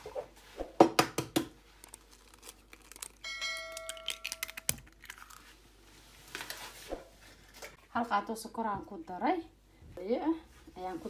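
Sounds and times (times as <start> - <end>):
eggshells cracking: 1.7 - 5.6.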